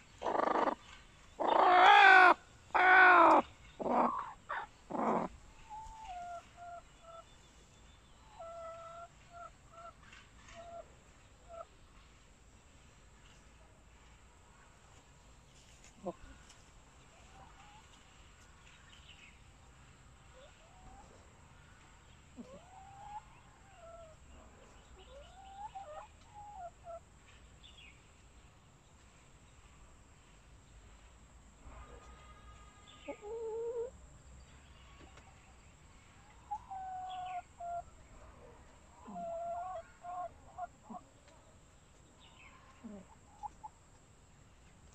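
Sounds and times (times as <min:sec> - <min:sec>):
hen clucking softly: 0:00.2 - 0:07.3, 0:08.3 - 0:11.8, 0:22.3 - 0:24.2, 0:25.0 - 0:27.0, 0:36.3 - 0:37.9, 0:38.9 - 0:41.3, 0:42.6 - 0:43.8.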